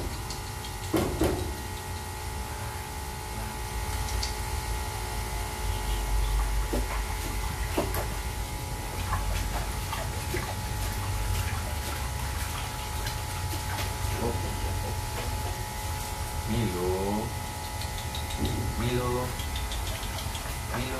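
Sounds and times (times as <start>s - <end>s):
low hum: 0.0s - 20.9s
water splashing in metal sink: 6.4s - 16.5s.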